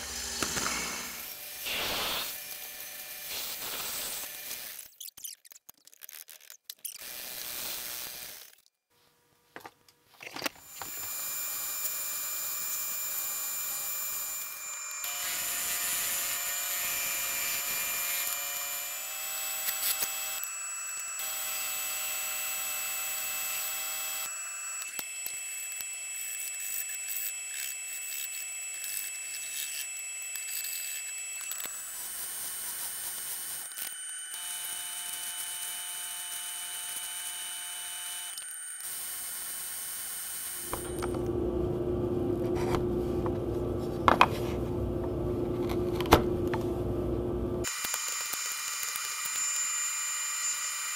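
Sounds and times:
power tool motor whine: 0:00.0 - 0:04.9, 0:10.5 - 0:41.4, 0:47.6 - 0:50.9.

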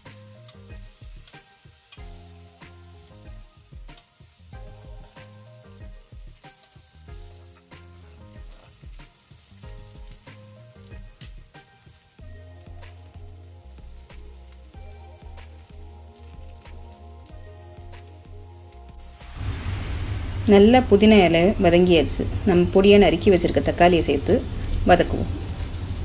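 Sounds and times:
background music with bass line: 0:00.0 - 0:24.0
onions sizzling in hot oil: 0:00.0 - 0:26.0
steel spoon stirring: 0:06.4 - 0:10.2.

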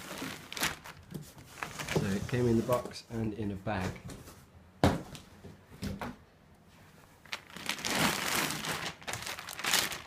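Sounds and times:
plastic bag crinkling: 0:00.0 - 0:02.2, 0:07.2 - 0:10.0.

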